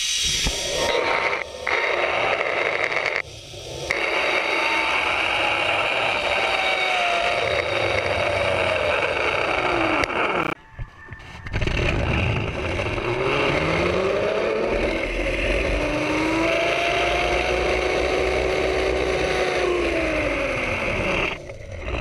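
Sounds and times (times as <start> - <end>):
steady hiss: 0.0 - 5.0
pulleys whining along cable: 0.0 - 22.0.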